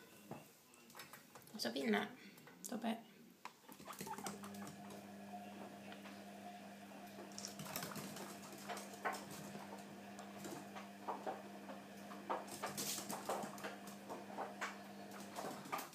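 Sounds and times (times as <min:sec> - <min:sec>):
guinea pigs squeaking: 0:03.7 - 0:05.0.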